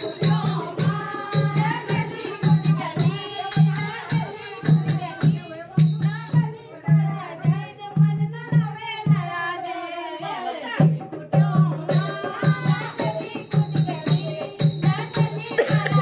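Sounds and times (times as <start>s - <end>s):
jingling percussion: 0.0s - 9.4s, 10.8s - 16.0s
voices singing devotional song: 0.0s - 16.0s
hand drum beating: 10.8s - 16.0s.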